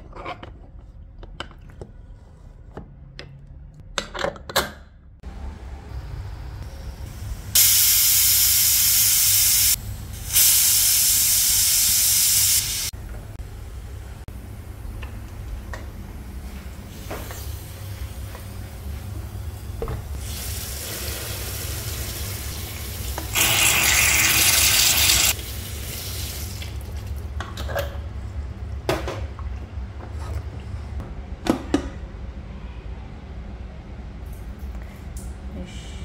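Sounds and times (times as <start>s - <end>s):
tap water running onto metal: 21.8s - 25.4s.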